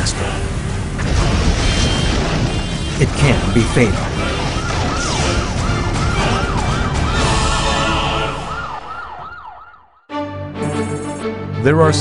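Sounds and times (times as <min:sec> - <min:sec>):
dense rumbling noise: 0:00.0 - 0:08.5
emergency siren wailing: 0:02.9 - 0:10.2.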